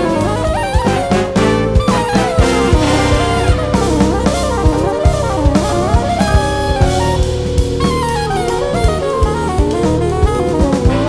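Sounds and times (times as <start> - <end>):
steady drum beat: 2.2 - 11.0
wavering melody: 2.7 - 4.9.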